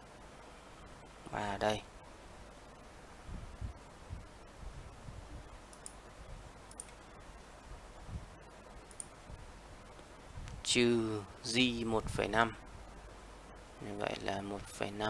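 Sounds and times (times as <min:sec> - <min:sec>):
computer mouse clicks: 0:05.7 - 0:06.0, 0:06.6 - 0:07.0, 0:08.8 - 0:09.2.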